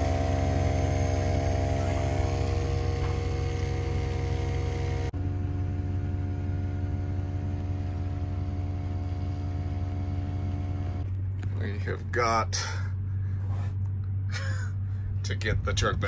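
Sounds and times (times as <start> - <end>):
air compressor humming: 0.0 - 11.9.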